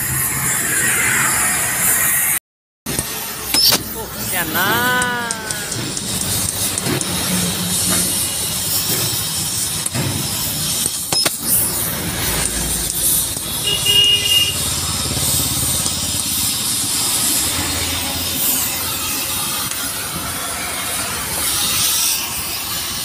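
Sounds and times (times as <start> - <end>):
gas cutting torch hissing: 0.0 - 23.0.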